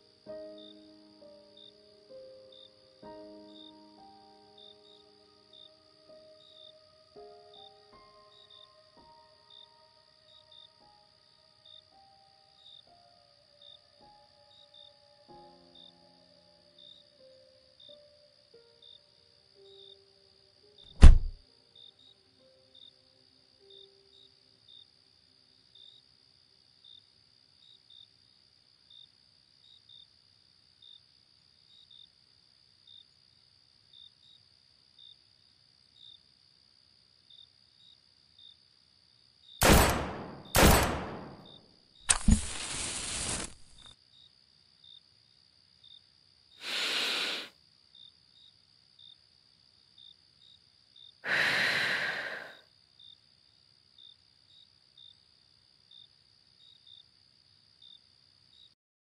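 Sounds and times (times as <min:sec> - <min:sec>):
crickets chirping: 0:00.0 - 0:58.8
loud sharp bangs: 0:21.0 - 0:21.4, 0:39.6 - 0:41.5
click: 0:42.1 - 0:42.6
hiss: 0:42.1 - 0:43.9, 0:46.6 - 0:47.6, 0:51.3 - 0:52.6
breathy rushes: 0:46.6 - 0:47.5, 0:51.3 - 0:52.6.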